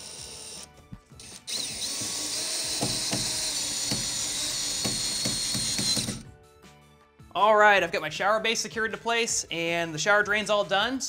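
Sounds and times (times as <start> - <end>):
cordless drill driving screw: 0.0 - 6.2.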